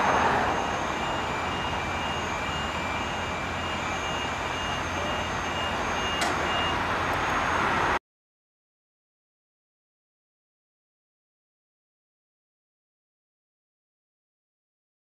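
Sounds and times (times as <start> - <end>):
heavy machinery rumble: 0.0 - 8.0
vehicle backup alarm beeping: 0.0 - 8.0.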